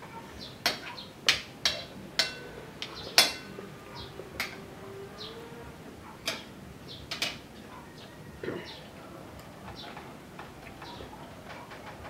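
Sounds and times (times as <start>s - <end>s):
cutlery clinking on ceramic plate: 0.6s - 3.6s.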